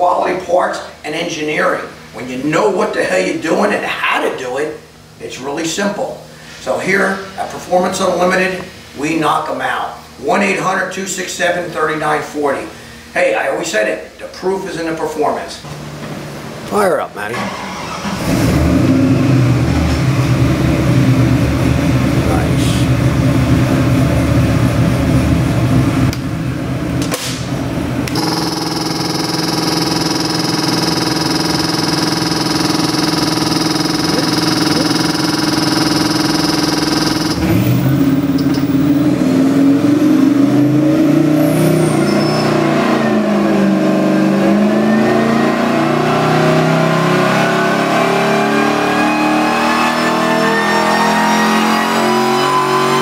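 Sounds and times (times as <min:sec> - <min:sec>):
supercharged engine revving: 0:28.1 - 0:53.0.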